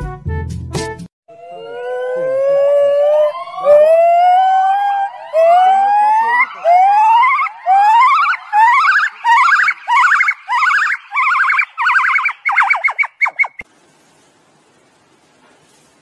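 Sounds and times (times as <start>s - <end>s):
gibbon whooping song: 1.4s - 13.6s.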